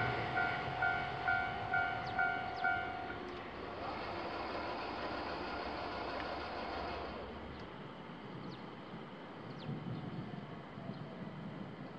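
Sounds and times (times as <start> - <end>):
level crossing warning bell: 0.0 - 3.2
rail traffic noise: 0.0 - 11.9.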